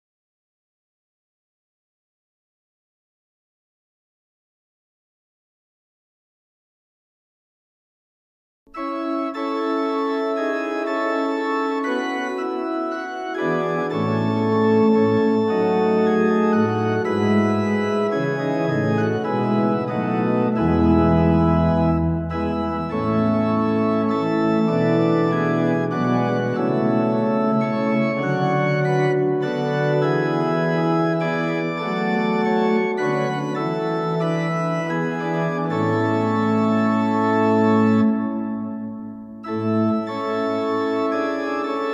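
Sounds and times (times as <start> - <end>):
church organ chords: 8.7 - 41.9
deep organ pedal note: 8.8 - 41.9.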